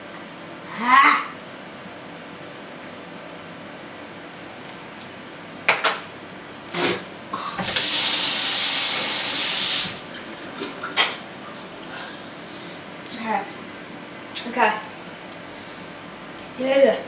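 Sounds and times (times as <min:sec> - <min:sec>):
kitchen tap running: 0:07.6 - 0:11.0.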